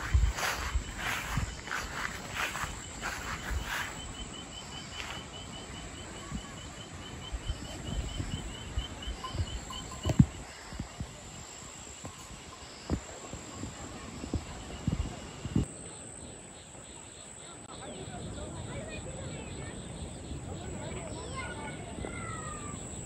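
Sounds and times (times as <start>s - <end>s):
dull low thumps: 0.0s - 4.2s
insect chirping: 0.0s - 23.0s.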